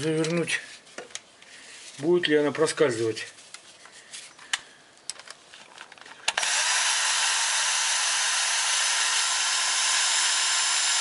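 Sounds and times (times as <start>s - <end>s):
electric drill-driver running: 6.3s - 11.0s.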